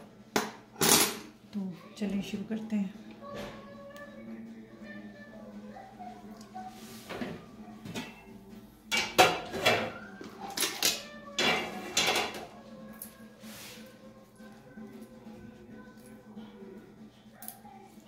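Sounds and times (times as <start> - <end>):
metal pot lid clanking and scraping: 11.4 - 12.4.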